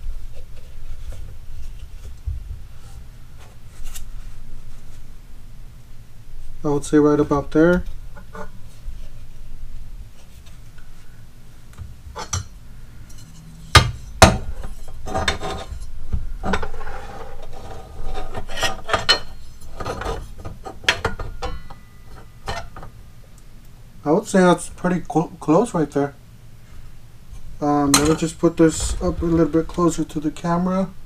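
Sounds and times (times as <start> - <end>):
metal scraping and rubbing: 13.0 - 22.8
sharp knocks on metal: 13.8 - 14.5.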